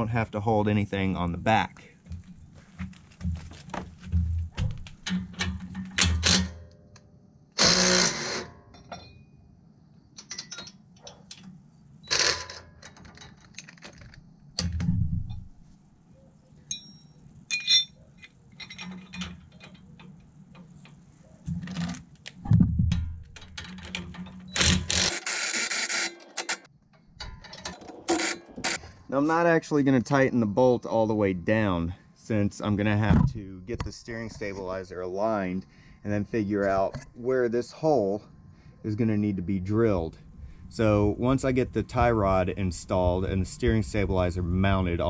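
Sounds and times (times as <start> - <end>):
metal clicks and clanks: 4.1 - 7.0, 10.2 - 15.4, 16.7 - 28.8.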